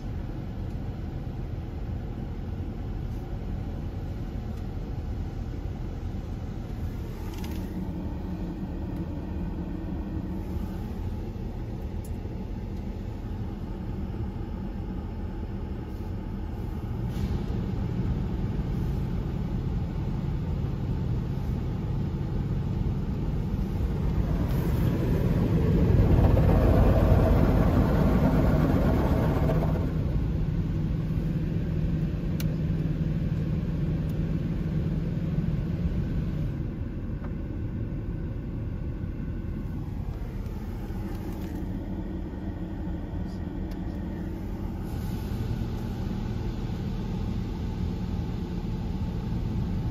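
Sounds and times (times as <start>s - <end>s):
steady low hum: 0.0s - 49.9s
car wash spraying water: 21.2s - 31.4s.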